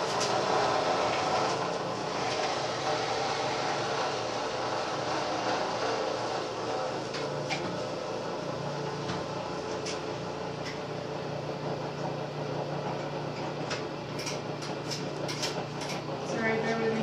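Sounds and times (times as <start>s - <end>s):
electric grinder motor humming: 0.0s - 8.9s.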